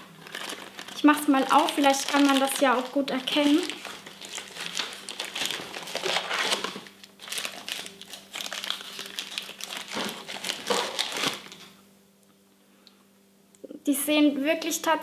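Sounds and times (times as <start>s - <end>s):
candy packaging crinkling: 0.0s - 11.7s.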